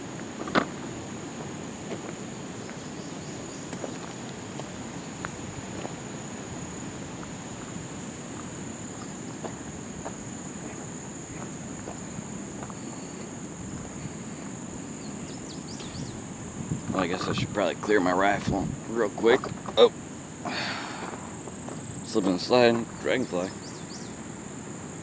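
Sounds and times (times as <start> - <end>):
high-pitched insect chorus: 0.0 - 25.0
footsteps on gravel: 0.1 - 2.9, 3.7 - 16.1, 20.9 - 23.0.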